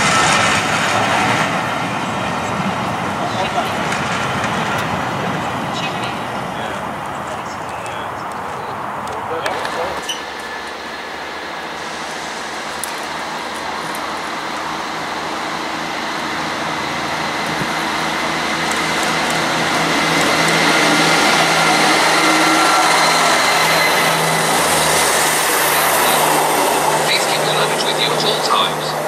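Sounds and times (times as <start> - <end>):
train engine drone: 0.0 - 29.0
train wheels on rails: 0.0 - 29.0.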